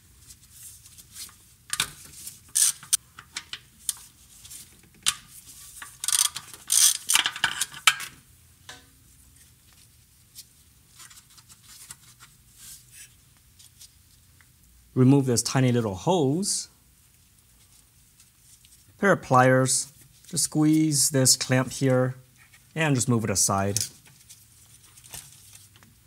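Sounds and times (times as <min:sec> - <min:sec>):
hand ratchet clicking: 0:02.6 - 0:03.0.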